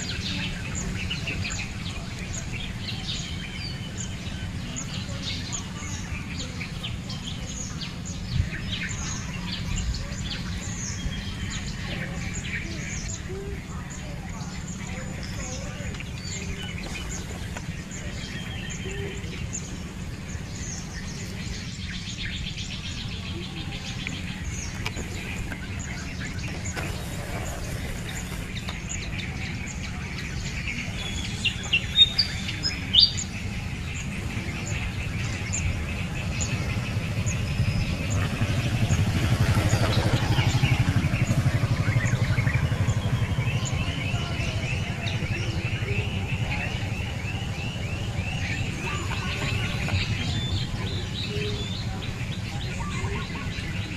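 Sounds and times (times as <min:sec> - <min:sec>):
birds chirping: 0:00.0 - 0:53.9.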